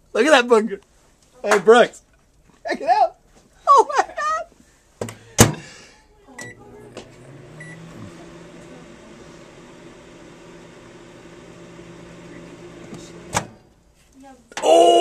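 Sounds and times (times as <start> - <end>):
microwave beeps: 6.4 - 8.6
microwave humming: 6.4 - 13.6.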